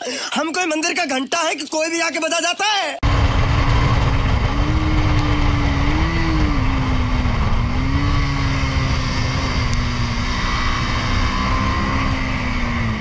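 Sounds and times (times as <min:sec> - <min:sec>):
wind rush on microphone: 0:03.0 - 0:13.0
motorcycle engine running: 0:03.1 - 0:13.0.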